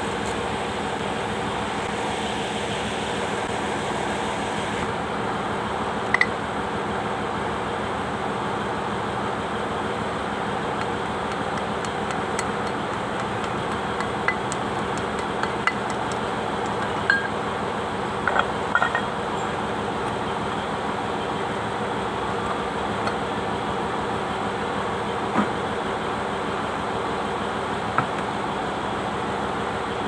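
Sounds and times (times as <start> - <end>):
steady background noise: 0.0 - 30.0
metal parts clinking and knocking: 16.7 - 17.3, 18.3 - 19.6.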